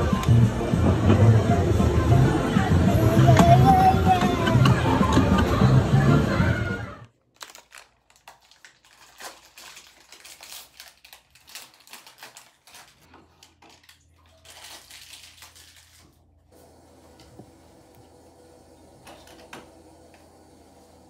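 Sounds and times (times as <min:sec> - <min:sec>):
plastic wrapper tearing and crinkling: 0:07.1 - 0:16.3.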